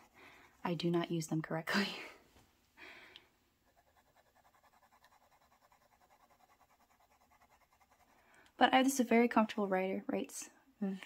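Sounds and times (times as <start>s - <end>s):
pen nib scratching on paper: 0.0s - 1.2s, 3.6s - 8.2s.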